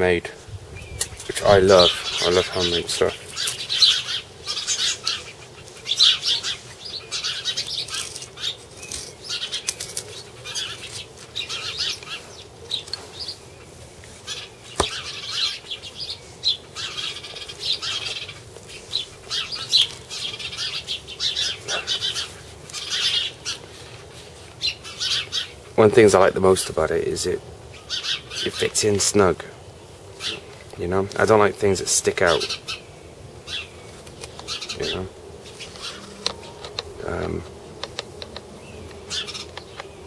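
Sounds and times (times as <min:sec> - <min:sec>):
birds chirping: 0:00.0 - 0:40.0
rustling of knife sheath handling: 0:07.6 - 0:11.4.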